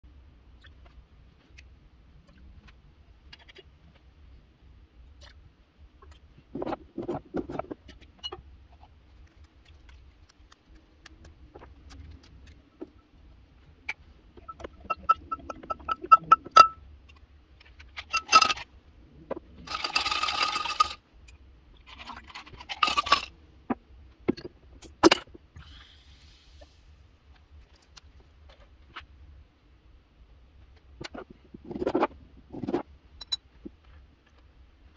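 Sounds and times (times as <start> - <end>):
ice cubes clattering into glass: 19.7 - 21.0, 22.0 - 23.3.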